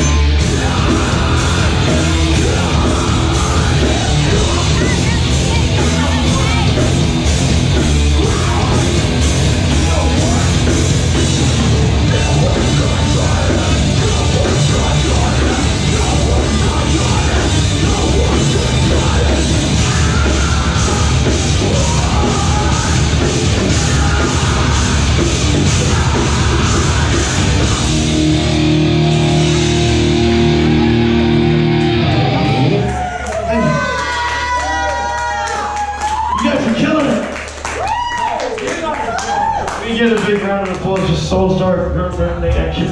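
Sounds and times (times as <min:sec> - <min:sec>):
metal band playing live: 0:00.0 - 0:33.1
shouted vocals: 0:11.6 - 0:28.6, 0:29.3 - 0:40.0.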